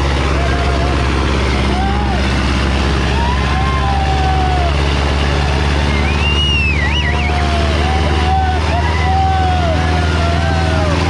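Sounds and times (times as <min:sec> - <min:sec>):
tractor diesel engine under load: 0:00.0 - 0:11.0
onlookers whistling and calling: 0:05.5 - 0:11.0
rising warbling whistle: 0:05.7 - 0:08.0.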